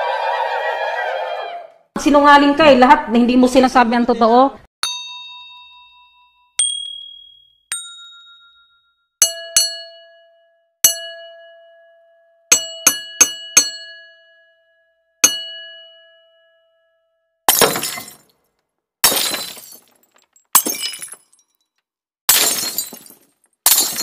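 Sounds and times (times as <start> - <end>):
bell-like dings: 4.8 - 17.2.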